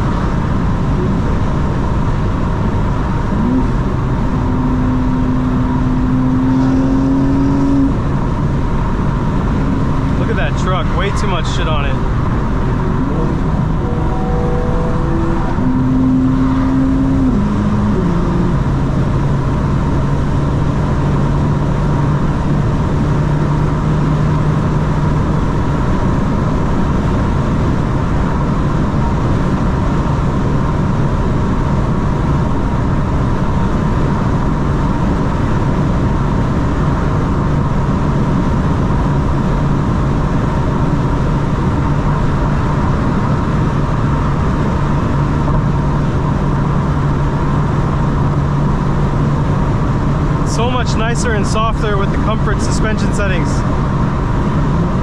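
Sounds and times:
car engine drone: 0:00.0 - 0:55.0.

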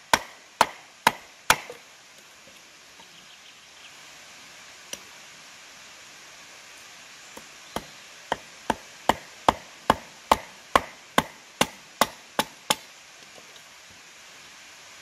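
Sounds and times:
steady background hiss: 0:00.0 - 0:15.0
wood chopping strikes: 0:00.1 - 0:01.8, 0:07.4 - 0:12.9.

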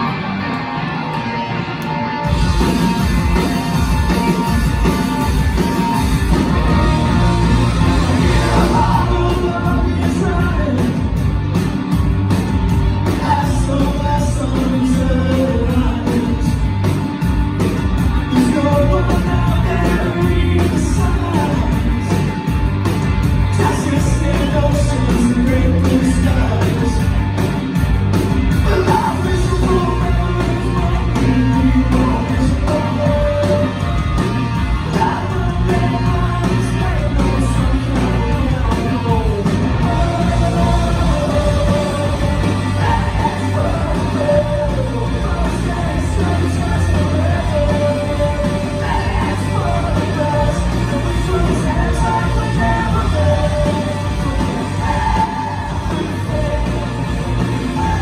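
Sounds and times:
punk rock band playing: 0:00.0 - 0:58.0
strummed guitar: 0:00.0 - 0:58.0
man singing: 0:07.8 - 0:11.2, 0:13.0 - 0:16.7, 0:18.2 - 0:22.4, 0:23.4 - 0:27.2, 0:28.5 - 0:58.0.

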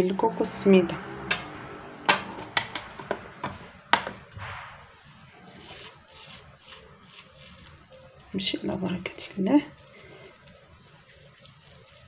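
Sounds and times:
hand rustling in dough: 0:04.9 - 0:12.0.

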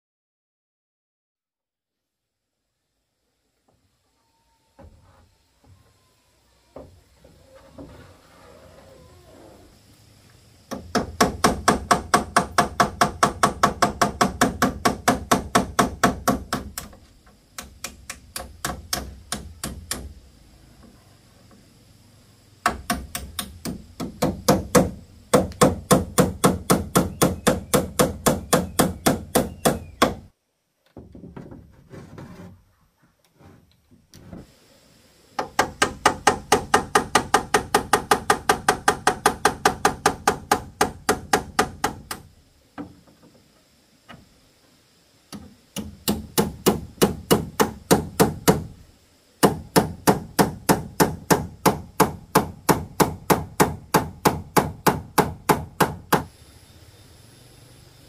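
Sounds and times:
hammer nailing metal roofing sheet: 0:10.7 - 0:17.0, 0:22.7 - 0:30.3, 0:35.4 - 0:42.3, 0:45.8 - 0:48.7, 0:49.4 - 0:56.3.

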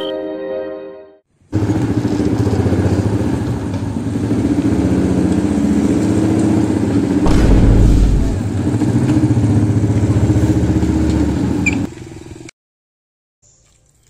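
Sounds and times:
deep rumble: 0:07.3 - 0:08.8.

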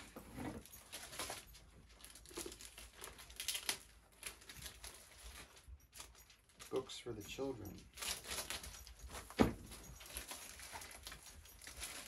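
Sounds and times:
packaging crinkling: 0:00.6 - 0:07.1, 0:07.9 - 0:12.0
knife cutting package open: 0:02.0 - 0:05.1
packaging tearing: 0:02.0 - 0:05.2.

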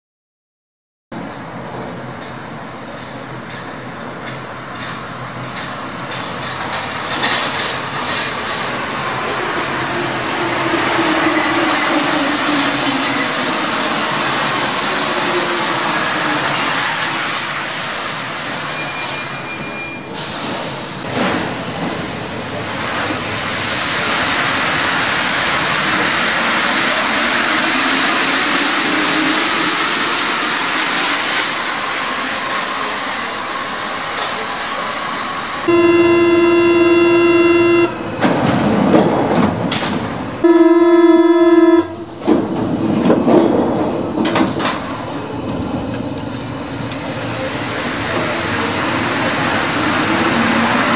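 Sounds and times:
train clicks: 0:01.8 - 0:08.8, 0:42.2 - 0:50.3
door-warning buzzer: 0:35.7 - 0:38.0, 0:40.5 - 0:42.0
train motor whine: 0:35.7 - 0:38.3, 0:40.4 - 0:42.5.

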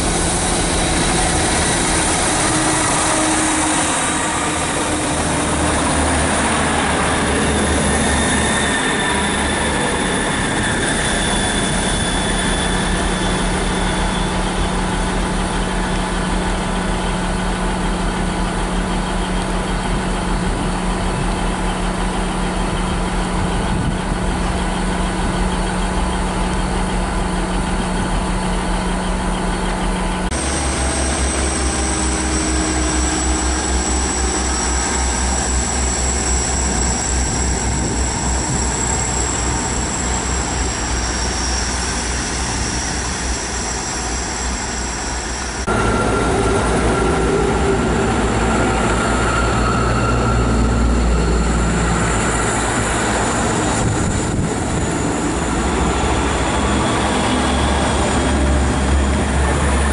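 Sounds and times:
high steady train whine: 0:00.0 - 0:59.9
train engine hum: 0:00.0 - 0:59.9
train running rumble: 0:00.0 - 0:59.9.

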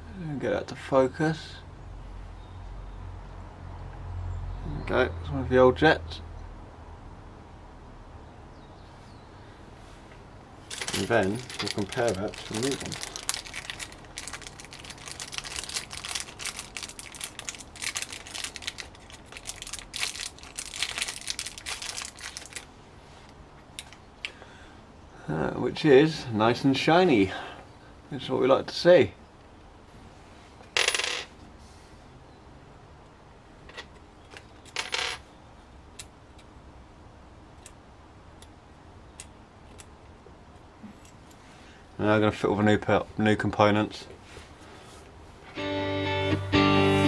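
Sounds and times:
plastic bag crinkling: 0:10.7 - 0:22.7
small metal parts rattling: 0:10.7 - 0:22.7.

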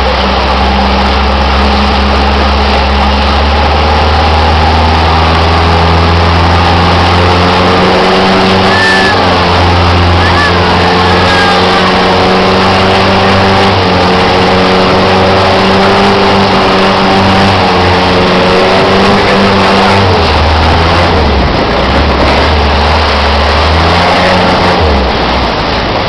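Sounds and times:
boat engine running: 0:00.0 - 0:26.0.

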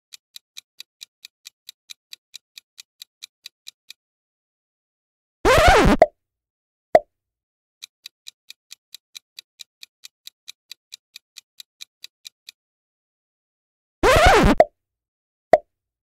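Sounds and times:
clock ticking: 0:00.1 - 0:04.0, 0:07.8 - 0:12.6.

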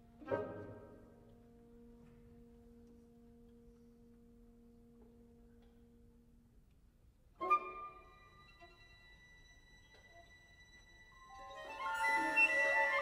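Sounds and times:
orchestra playing softly: 0:07.3 - 0:13.0.

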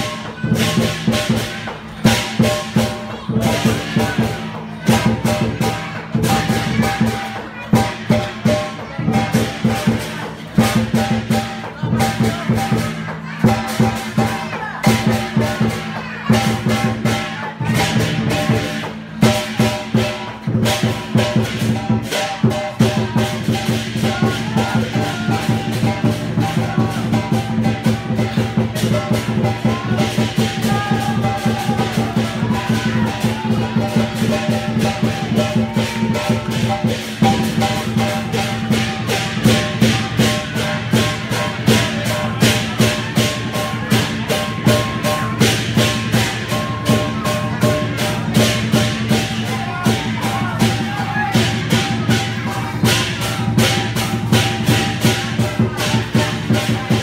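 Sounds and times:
cymbals crashing: 0:00.0 - 0:57.0
drum beat: 0:00.0 - 0:57.0.

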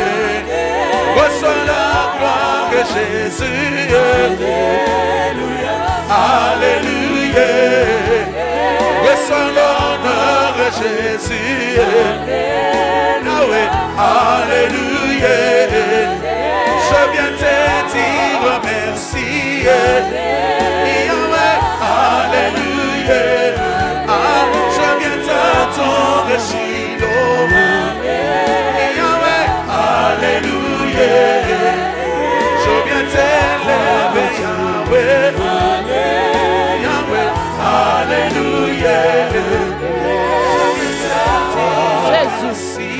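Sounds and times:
choir singing gospel: 0:00.0 - 0:42.9
steady bass line: 0:00.0 - 0:42.9.

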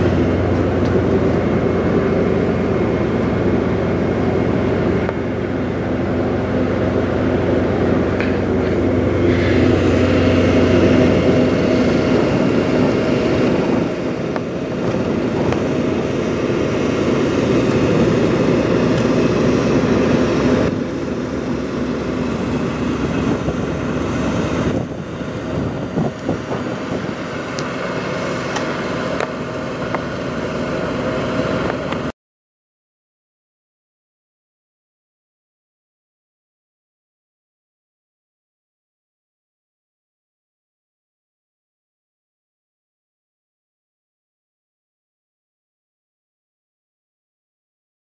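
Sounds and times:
diesel truck engine idling: 0:00.0 - 0:32.1.

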